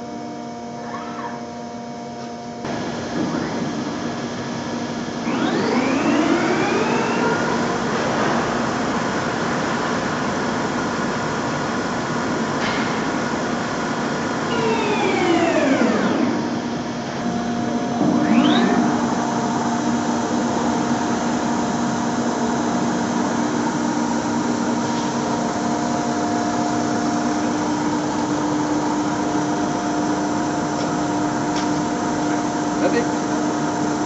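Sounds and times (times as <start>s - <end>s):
steady machine hum: 0.0s - 34.0s
machine spindle drive whining: 2.7s - 9.3s, 14.2s - 34.0s.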